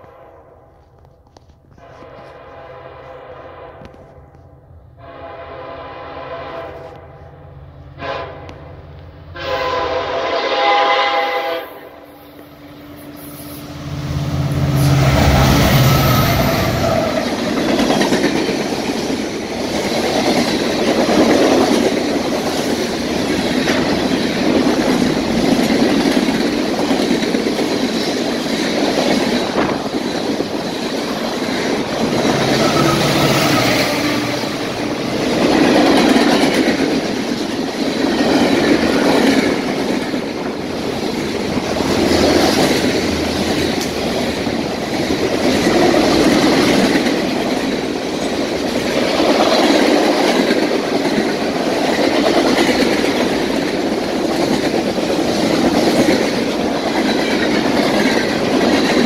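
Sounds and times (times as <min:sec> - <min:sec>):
locomotive horn: 0:01.7 - 0:04.4, 0:05.0 - 0:08.7, 0:09.3 - 0:12.0, 0:32.3 - 0:35.4
train wheels clattering on rails: 0:14.0 - 0:59.0
locomotive engine rumble: 0:29.4 - 0:36.4.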